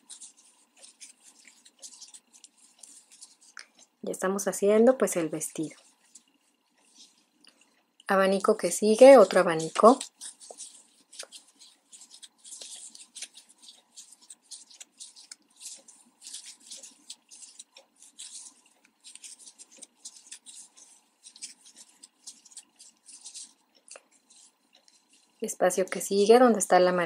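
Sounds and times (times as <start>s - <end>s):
crochet hook scraping yarn: 0.0s - 4.0s, 5.0s - 7.5s, 8.1s - 26.4s.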